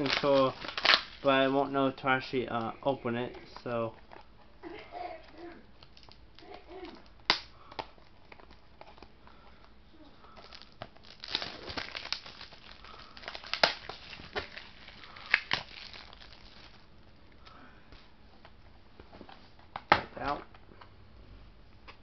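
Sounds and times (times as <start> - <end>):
plastic wrap crinkling: 0.0 - 1.6, 5.2 - 16.9.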